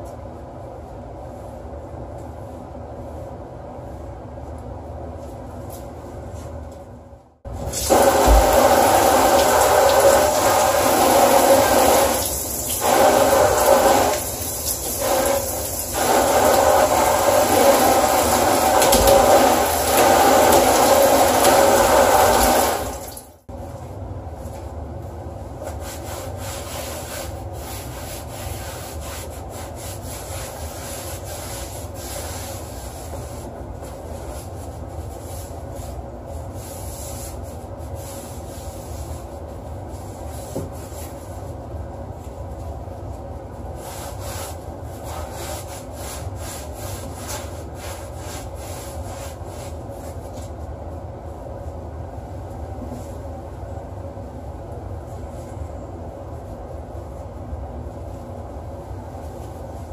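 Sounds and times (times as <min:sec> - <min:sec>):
shower head spraying water on metal: 0:07.7 - 0:23.2
cloth wiping: 0:25.4 - 0:50.7.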